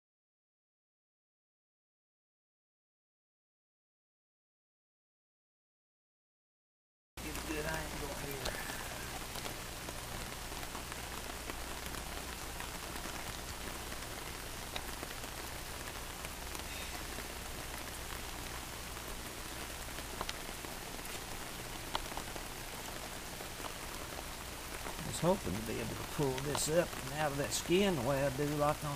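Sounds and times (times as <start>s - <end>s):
rain falling on wet pavement: 7.2s - 28.9s.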